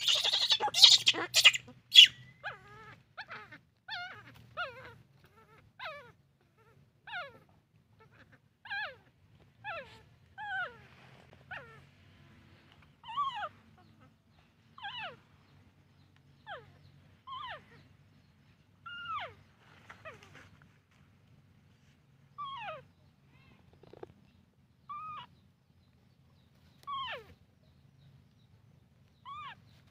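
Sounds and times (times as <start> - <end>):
infant monkey high calls: 0.0 - 12.3, 12.9 - 20.6, 22.3 - 24.0, 24.8 - 25.5, 26.8 - 27.8, 29.1 - 29.9.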